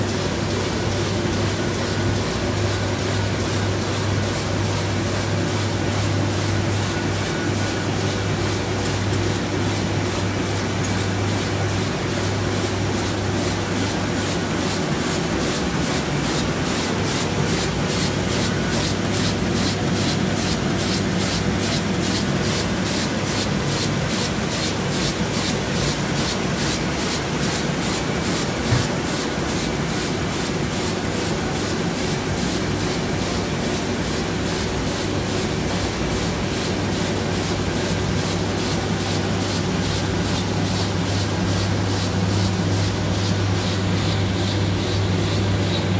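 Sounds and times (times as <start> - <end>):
printing press running: 0.0 - 45.9.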